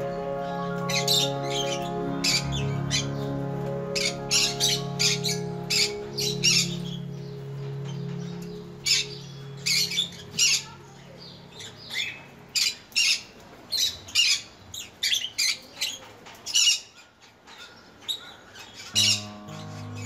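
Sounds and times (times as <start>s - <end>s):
parrots squawking: 0.0s - 10.8s, 18.0s - 20.0s.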